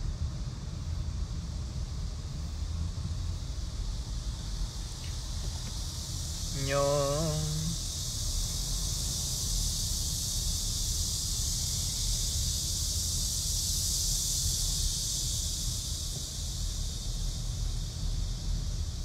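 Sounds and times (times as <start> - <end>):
high hiss: 0.0 - 19.0.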